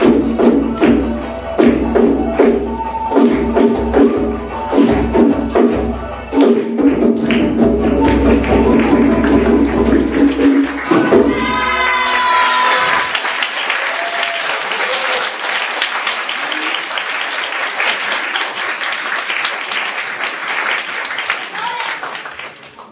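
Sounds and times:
live band playing dance music: 0:00.0 - 0:13.1
audience applauding: 0:06.3 - 0:22.9.

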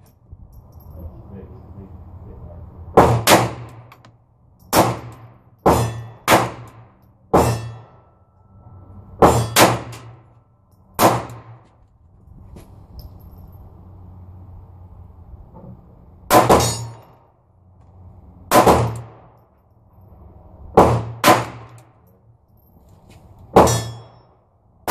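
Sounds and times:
pistol shots: 0:03.0 - 0:03.9, 0:04.7 - 0:07.6, 0:11.0 - 0:11.6, 0:16.3 - 0:17.0, 0:18.5 - 0:19.3, 0:20.8 - 0:21.8
bullets ringing on steel targets: 0:03.0 - 0:11.6, 0:16.3 - 0:17.3, 0:23.5 - 0:24.9.

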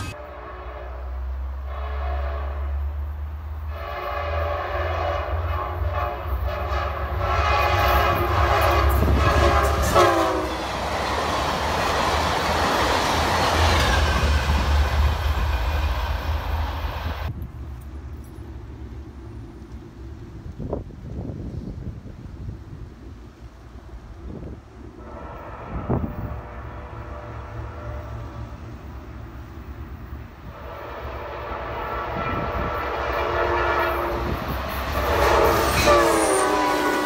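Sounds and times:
train air horn blasts: 0:00.0 - 0:03.0, 0:03.6 - 0:10.8, 0:24.9 - 0:28.8, 0:30.4 - 0:37.0
train rumble and wheel clatter: 0:00.0 - 0:37.0.

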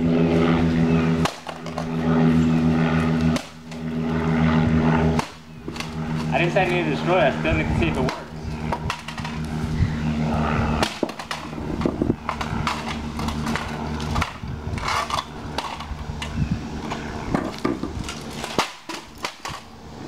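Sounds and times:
steady low hum: 0:00.0 - 0:20.0
device clattering on concrete: 0:10.8 - 0:19.7.

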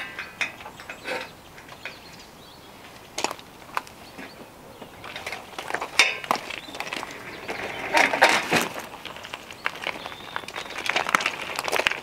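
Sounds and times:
footsteps crunching on gravel: 0:01.7 - 0:12.0
tackle clattering on gravel: 0:03.0 - 0:04.0, 0:04.9 - 0:12.0.

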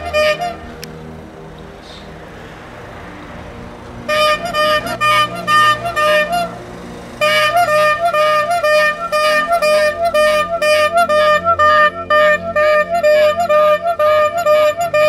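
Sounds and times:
instrumental music: 0:03.8 - 0:15.0.

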